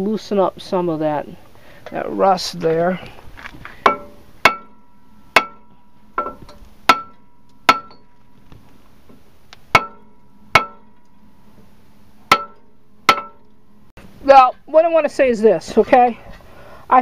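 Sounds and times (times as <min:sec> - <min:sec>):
hammer clanging on metal: 0:03.8 - 0:08.2, 0:09.7 - 0:11.2, 0:12.2 - 0:13.6.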